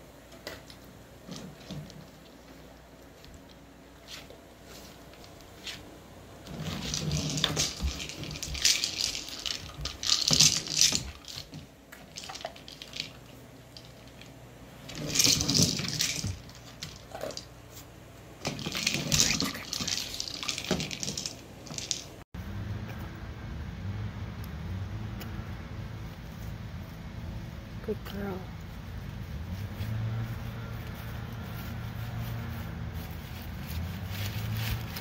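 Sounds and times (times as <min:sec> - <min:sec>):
toy ball rattling on wood floor: 0:06.5 - 0:14.3, 0:14.9 - 0:17.5, 0:18.4 - 0:22.2.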